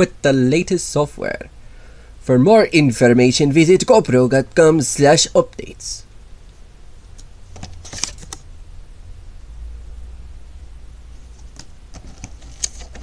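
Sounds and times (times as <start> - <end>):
low steady hum: 0.0 - 13.0
paper and cardboard rustling: 7.5 - 8.4, 11.2 - 13.0.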